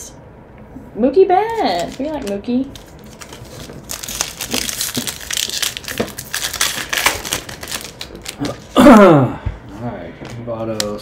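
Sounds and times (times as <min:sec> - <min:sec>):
foil wrapper crinkling: 0:01.4 - 0:08.8.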